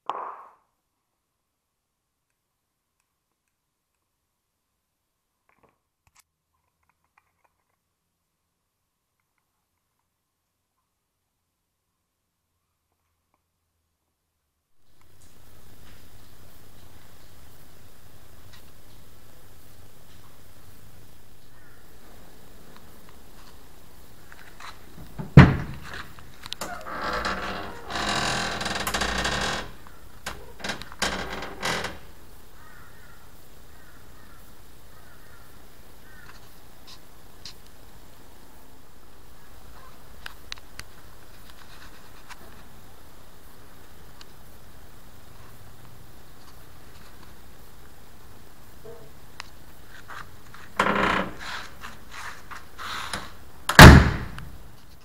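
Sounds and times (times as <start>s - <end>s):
door scraping: 24.4s - 32.1s, 50.6s - 54.6s
metallic door latch clack: 25.0s - 26.0s, 53.7s - 54.5s
latch clicks: 25.0s - 29.7s, 53.1s - 54.5s.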